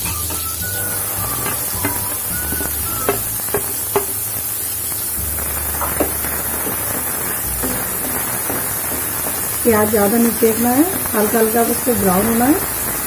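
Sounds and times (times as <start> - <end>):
onions sizzling in oil: 0.0 - 13.0
spatula knocking against pan: 1.4 - 4.2.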